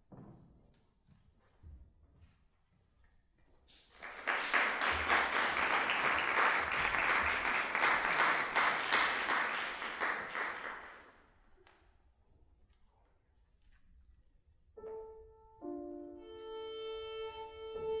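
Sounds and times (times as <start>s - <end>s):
audience applauding: 3.9s - 11.2s.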